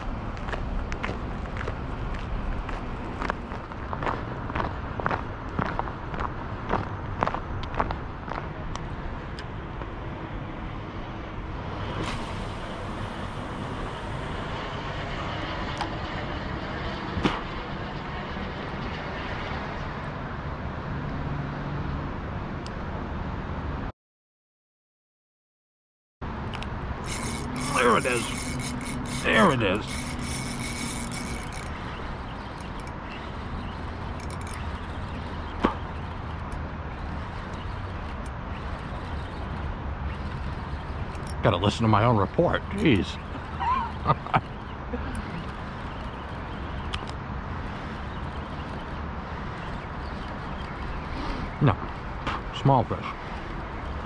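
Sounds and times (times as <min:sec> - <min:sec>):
low outdoor rumble: 0:00.0 - 0:23.9, 0:26.3 - 0:54.0
fishing line cast hiss: 0:11.8 - 0:14.5, 0:27.0 - 0:29.3
fishing reel click: 0:26.6 - 0:33.0, 0:34.1 - 0:34.8.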